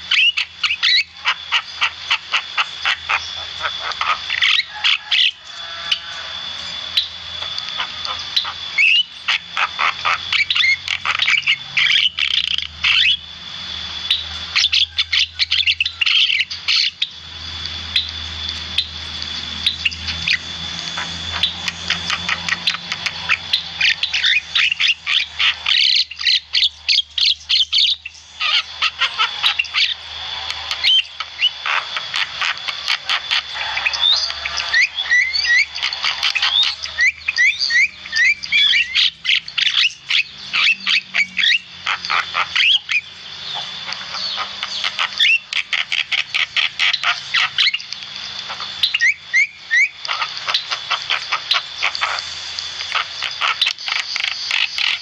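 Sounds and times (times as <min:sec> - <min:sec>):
myna bird singing: 0:00.0 - 0:55.0.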